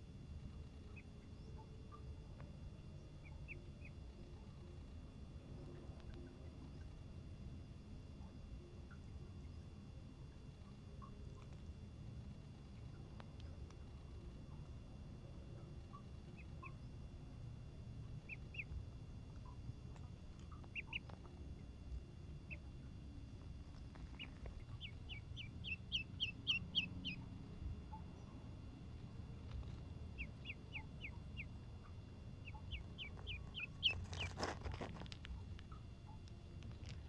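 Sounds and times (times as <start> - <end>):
duckling peeping: 3.1 - 4.6, 15.6 - 37.0.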